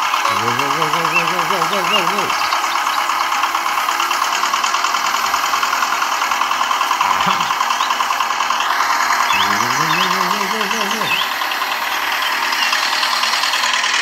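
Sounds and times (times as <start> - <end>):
small tractor engine chugging: 0.0 - 14.0
person calling out: 0.3 - 2.5, 7.0 - 7.6, 9.3 - 11.3.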